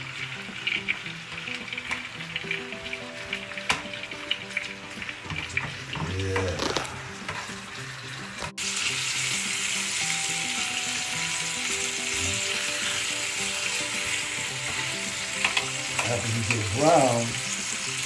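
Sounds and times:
clicks of meat in a pan: 0.0s - 7.6s, 12.8s - 18.0s
meat sizzling in a pan: 0.0s - 18.0s.

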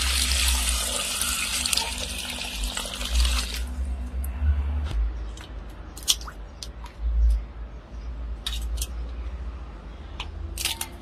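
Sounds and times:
water drips and squelches: 0.0s - 7.5s.

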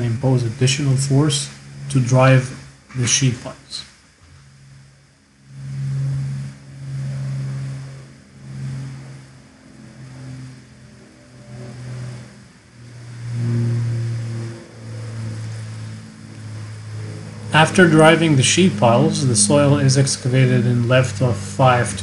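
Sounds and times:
piling rig engine revving: 0.0s - 22.0s.

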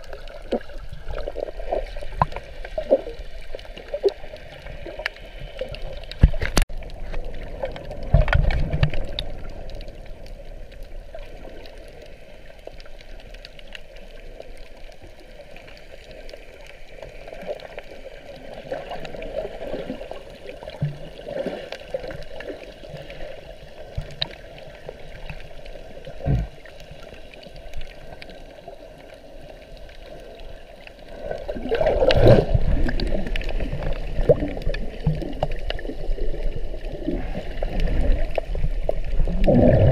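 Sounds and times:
muffled underwater gurgling: 13.9s - 39.9s
rushing water surge: 31.1s - 39.9s.

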